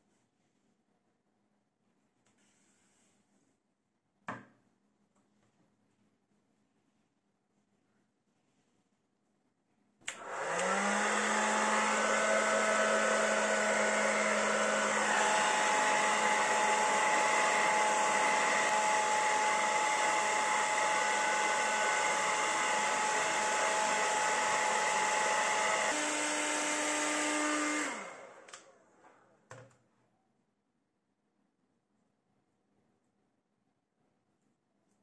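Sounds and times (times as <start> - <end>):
hair dryer running: 10.1 - 28.8.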